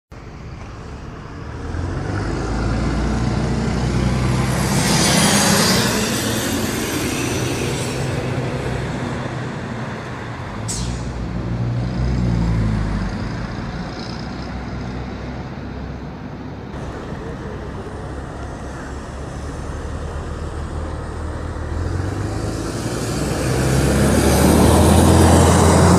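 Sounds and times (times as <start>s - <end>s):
bus diesel engine accelerating: 0.1s - 25.9s
high whistle rising in pitch: 4.6s - 8.8s
short hiss: 10.7s - 11.1s.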